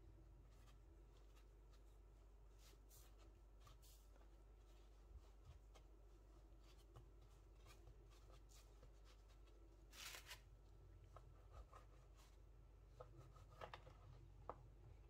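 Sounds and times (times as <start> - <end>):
hands rolling dough on board: 0.3 - 9.7.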